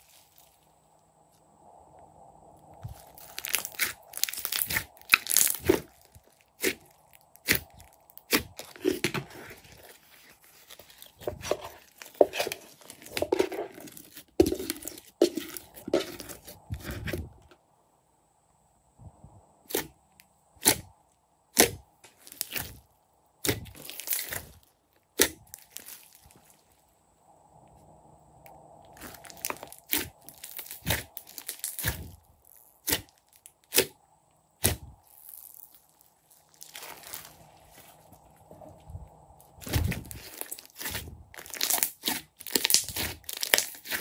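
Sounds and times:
slime popping and crackling: 2.8s - 15.8s, 23.4s - 24.6s, 29.0s - 32.1s, 39.6s - 44.0s.

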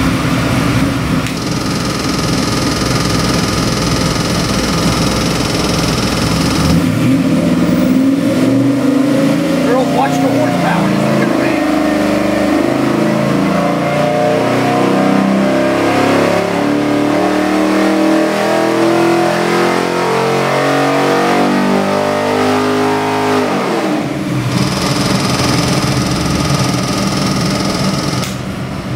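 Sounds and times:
engine running at full throttle: 0.0s - 28.9s.

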